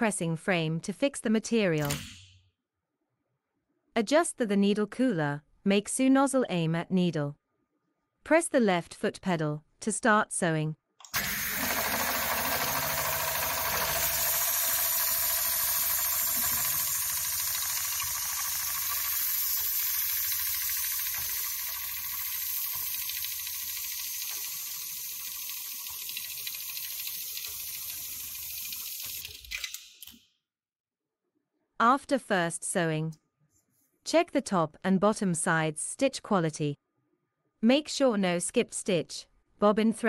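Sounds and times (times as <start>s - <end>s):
sewing machine stitching: 11.1s - 29.6s.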